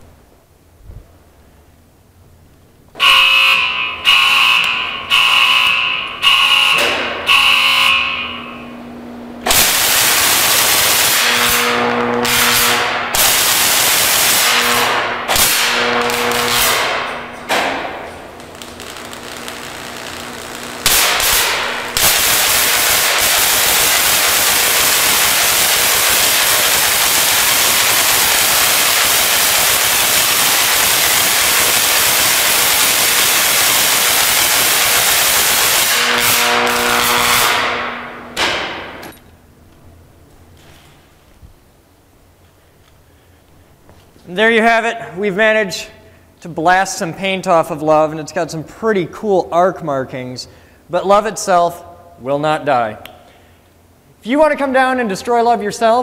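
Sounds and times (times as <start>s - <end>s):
low electrical hum: 0.0s - 56.0s
alarm sounding: 3.0s - 9.2s, 9.8s - 17.4s, 18.8s - 38.1s
high-voltage hiss: 9.5s - 17.0s, 18.2s - 37.8s.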